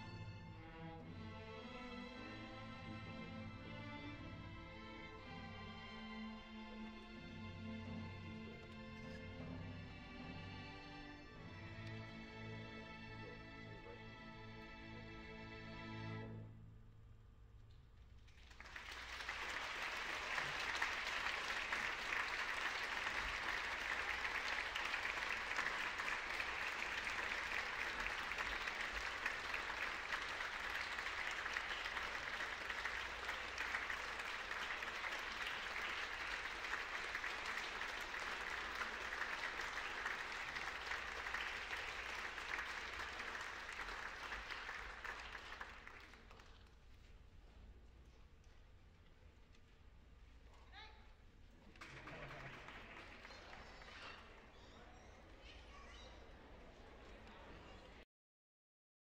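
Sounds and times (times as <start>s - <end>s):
audience applauding: 18.4s - 46.7s, 51.6s - 56.0s.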